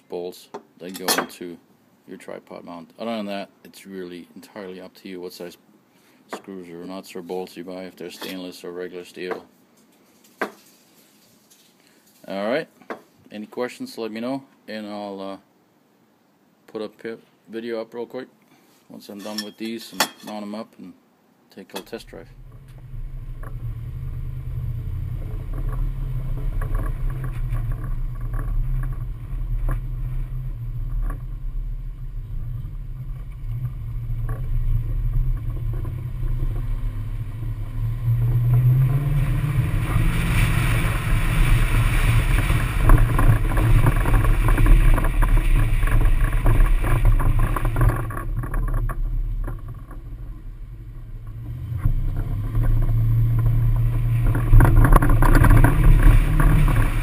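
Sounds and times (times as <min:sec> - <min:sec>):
engine and road drone: 0:22.0 - 0:57.0
wind noise on microphone: 0:22.2 - 0:57.0
roof rack rattle: 0:40.3 - 0:57.0.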